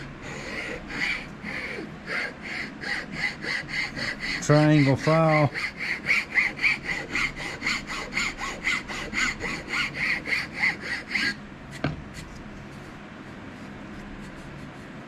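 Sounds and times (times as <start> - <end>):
file rasping on knife handle: 0.0 - 11.9.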